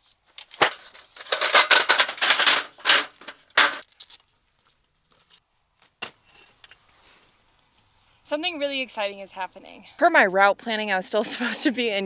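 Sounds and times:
rattling table slats: 0:00.6 - 0:03.8.

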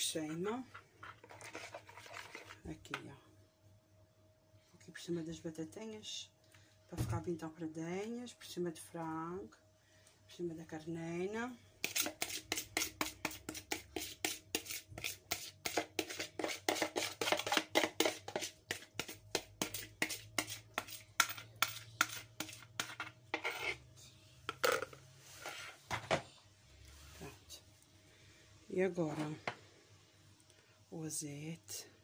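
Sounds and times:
spoon scraping plastic bowl: 0:00.2 - 0:03.0, 0:11.8 - 0:23.9, 0:24.5 - 0:25.9.

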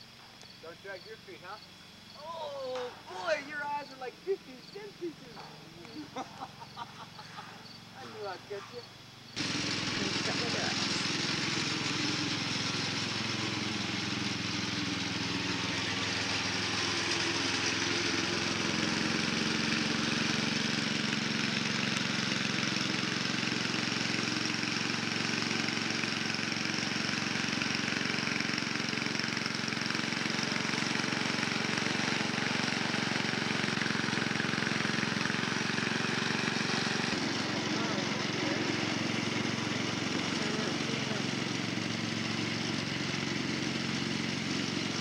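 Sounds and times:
riding lawn mower engine: 0:00.0 - 0:45.0.

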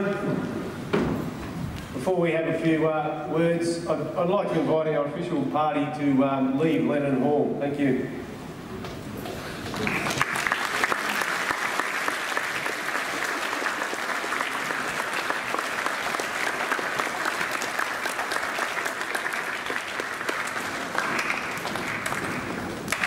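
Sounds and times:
audience applauding: 0:09.3 - 0:23.0.

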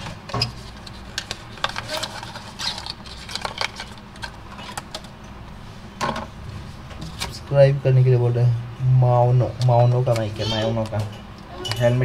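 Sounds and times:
paper packaging rustling: 0:00.0 - 0:05.1.

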